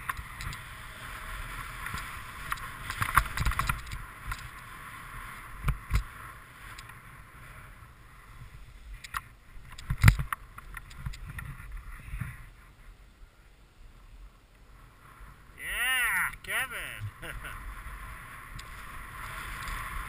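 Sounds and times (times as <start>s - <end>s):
snowboard scraping over snow: 0.2s - 9.6s, 14.7s - 20.0s.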